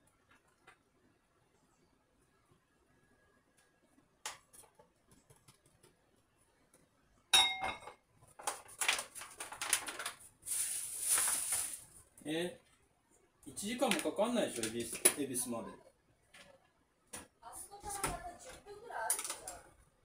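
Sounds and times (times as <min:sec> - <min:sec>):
plastic food packet crinkling: 0:08.3 - 0:12.0, 0:13.7 - 0:15.0, 0:19.1 - 0:19.6.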